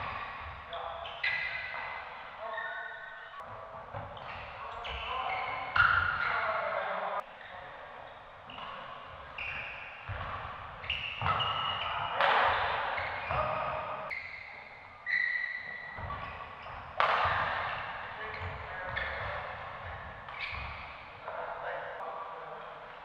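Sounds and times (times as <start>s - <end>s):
sneakers squeaking on floor: 0.0s - 22.0s
racket hitting shuttlecock: 10.0s - 14.1s, 15.7s - 21.1s.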